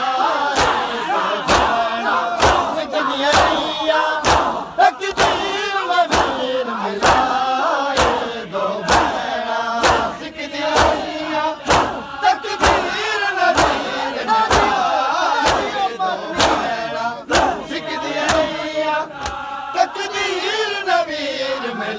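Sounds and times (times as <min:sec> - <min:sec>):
men chanting in unison: 0:00.0 - 0:21.9
hands slapping chests: 0:00.5 - 0:00.9, 0:01.5 - 0:01.8, 0:02.4 - 0:07.3, 0:07.9 - 0:09.2, 0:09.8 - 0:15.8, 0:16.4 - 0:16.7, 0:17.3 - 0:17.6, 0:18.2 - 0:18.5, 0:19.2 - 0:19.5.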